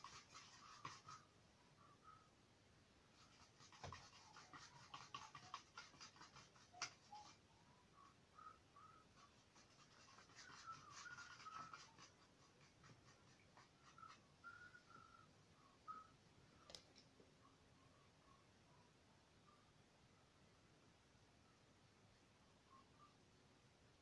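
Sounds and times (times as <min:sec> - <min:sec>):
paintbrush scratching on canvas: 0:00.0 - 0:01.3, 0:03.1 - 0:15.3
soft whistling: 0:07.1 - 0:09.3, 0:10.4 - 0:12.0, 0:13.8 - 0:16.7, 0:22.7 - 0:23.2.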